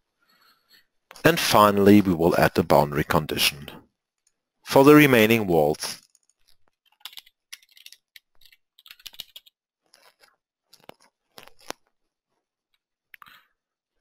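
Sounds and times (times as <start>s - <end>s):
keyboard typing: 6.1s - 9.6s.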